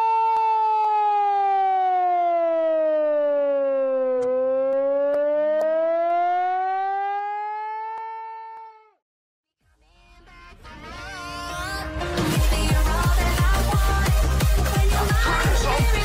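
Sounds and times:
megaphone siren wail: 0:00.0 - 0:09.0, 0:14.9 - 0:16.0.

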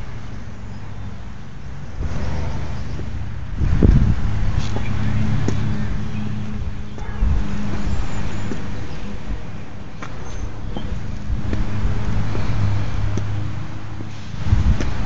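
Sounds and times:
vehicle engine idling: 0:00.0 - 0:15.0
rumbling on microphone: 0:02.0 - 0:09.4, 0:10.4 - 0:15.0.

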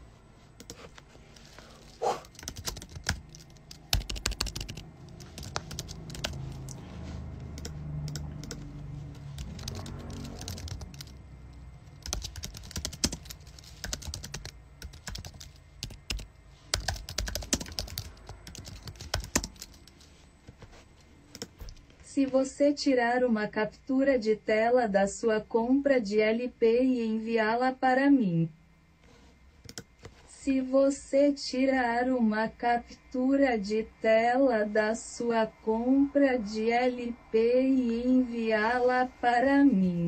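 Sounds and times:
low hum: 0:00.0 - 0:12.2, 0:32.3 - 0:40.0.

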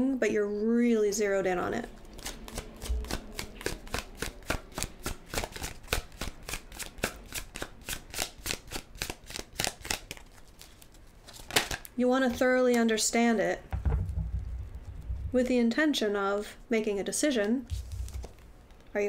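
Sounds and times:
cards being shuffled: 0:02.1 - 0:12.8, 0:17.4 - 0:18.9.

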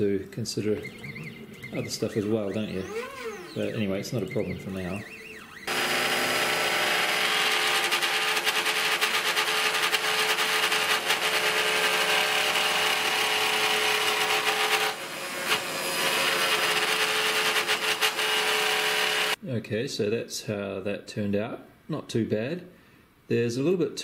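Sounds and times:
router spindle whine: 0:00.8 - 0:19.4
bit rasping through wood: 0:00.9 - 0:19.4.

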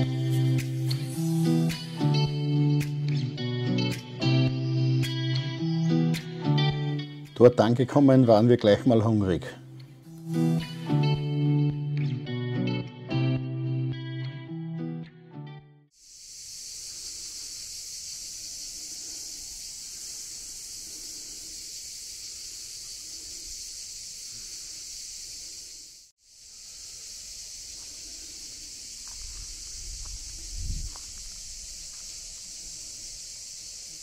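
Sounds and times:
guitar music: 0:00.0 - 0:08.4, 0:09.6 - 0:15.9
high-pitched outdoor hiss: 0:00.0 - 0:11.9, 0:15.9 - 0:34.0.

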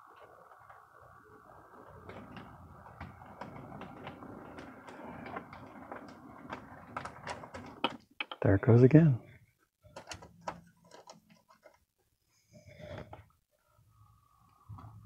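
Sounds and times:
wheels clicking over rail joints: 0:00.0 - 0:11.9.

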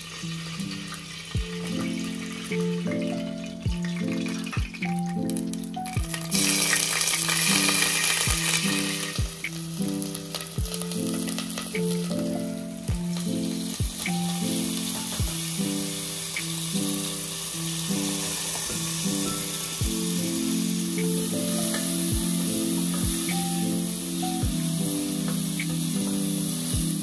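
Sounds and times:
background music with soft beat: 0:00.0 - 0:27.0
onions sizzling in hot oil: 0:00.0 - 0:27.0.

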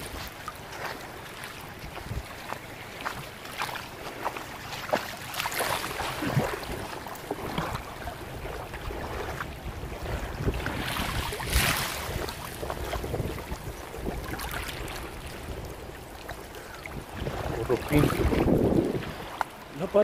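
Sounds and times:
wind buffeting microphone: 0:00.0 - 0:03.3, 0:05.7 - 0:20.0
small splashes and clicks: 0:00.0 - 0:07.9
sea water lapping and splashing: 0:00.0 - 0:20.0.

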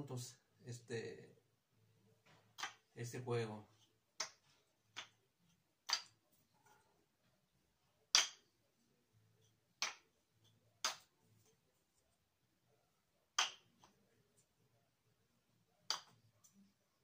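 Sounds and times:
wooden cup and ball toy clacking: 0:02.5 - 0:02.9, 0:04.2 - 0:05.2, 0:05.8 - 0:06.2, 0:08.1 - 0:08.4, 0:09.8 - 0:10.1, 0:10.8 - 0:11.1, 0:13.4 - 0:14.0, 0:15.9 - 0:16.2.

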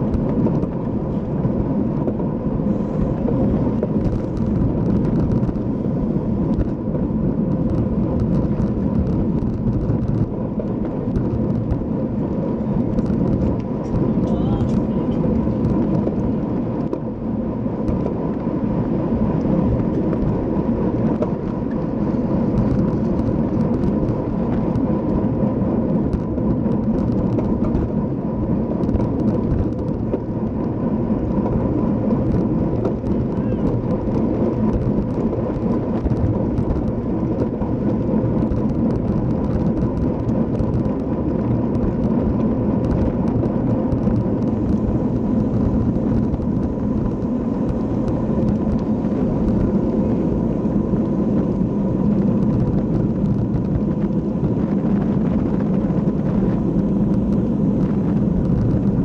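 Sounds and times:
bicycle tyre and road noise: 0:00.0 - 0:59.0
wind rushing on microphone: 0:00.0 - 0:59.0.

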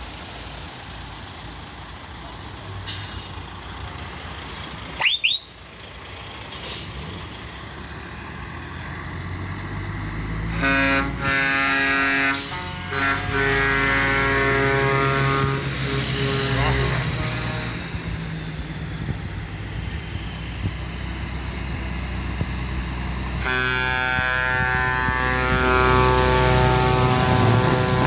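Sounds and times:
trucks rumbling: 0:00.0 - 0:28.0
multi-tone truck air horns: 0:10.4 - 0:18.1, 0:23.3 - 0:28.0.

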